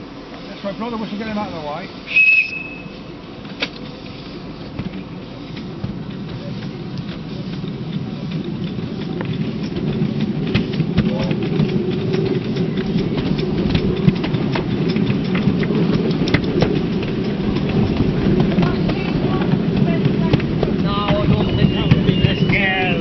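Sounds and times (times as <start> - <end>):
miniature train rumbling and clicking: 0.0 - 23.0.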